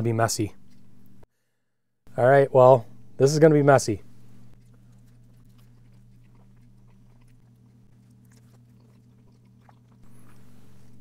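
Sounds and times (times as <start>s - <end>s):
steady low hum: 2.1s - 11.0s
biting and chewing food: 4.5s - 11.0s.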